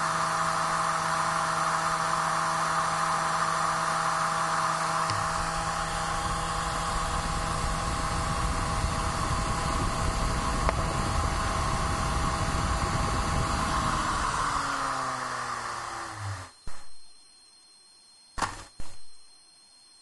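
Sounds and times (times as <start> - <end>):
disc drive whirring: 4.8 - 17.2.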